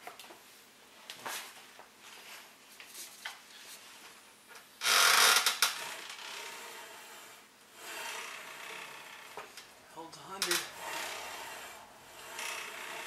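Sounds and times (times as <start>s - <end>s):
gym cables and pulleys running: 4.8s - 13.0s
loud rasping burst: 5.0s - 9.7s, 10.4s - 13.0s.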